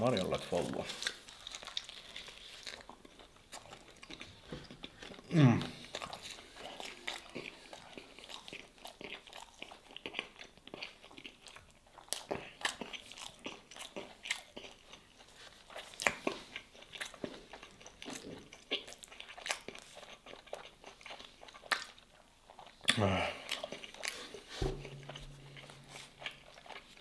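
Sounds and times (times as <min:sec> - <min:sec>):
person chewing and crunching: 0:00.2 - 0:27.0.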